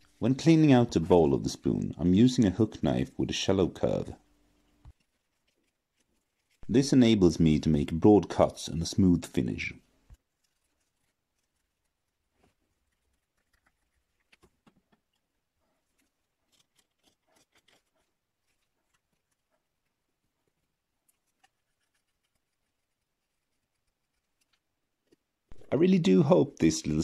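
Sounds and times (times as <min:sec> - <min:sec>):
knife scraping wood: 0:04.6 - 0:06.7, 0:10.3 - 0:19.6.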